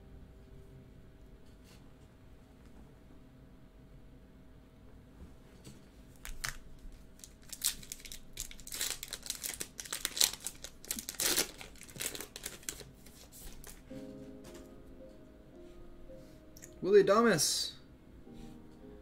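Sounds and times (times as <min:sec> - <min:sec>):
foil wrapper tearing and crinkling: 0:06.2 - 0:13.9.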